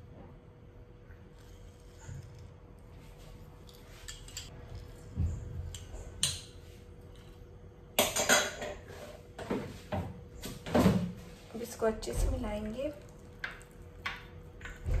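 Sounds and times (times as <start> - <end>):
metal clatter in sink: 8.0 - 9.6.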